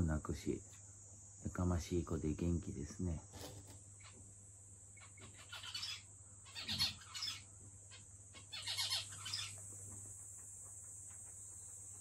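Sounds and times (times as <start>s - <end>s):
finch calling: 5.0s - 9.7s.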